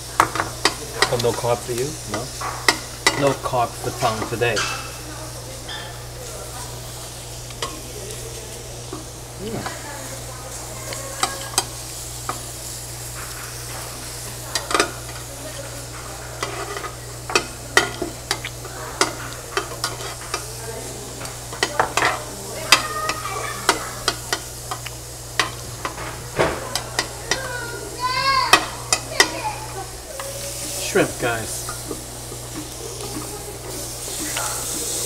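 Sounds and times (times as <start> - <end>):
meat sizzling on grill: 0.0 - 35.0
metal tongs clicking and scraping: 14.5 - 20.6, 21.2 - 26.0.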